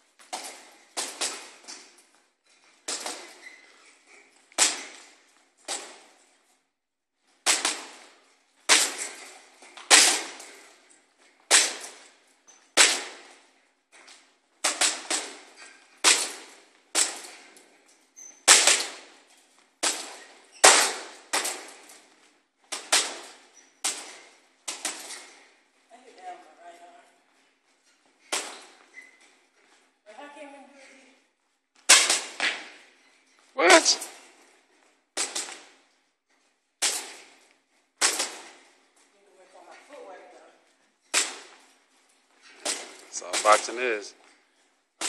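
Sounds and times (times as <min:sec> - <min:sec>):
boxing gloves punching heavy bag: 0:19.8 - 0:21.8.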